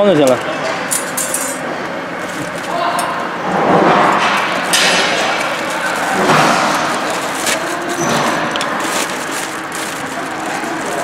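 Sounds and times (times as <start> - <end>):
foil duct crinkling: 2.2 - 2.9, 4.4 - 11.0.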